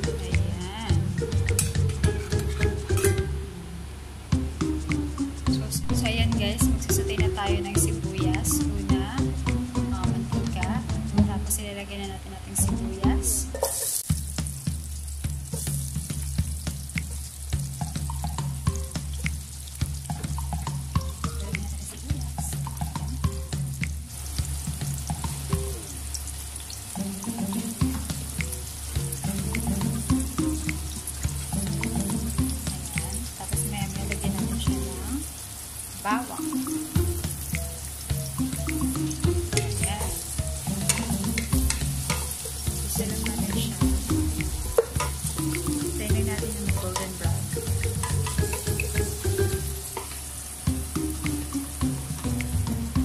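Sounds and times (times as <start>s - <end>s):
background music: 0.0s - 53.0s
onions sizzling in hot oil: 13.1s - 53.0s.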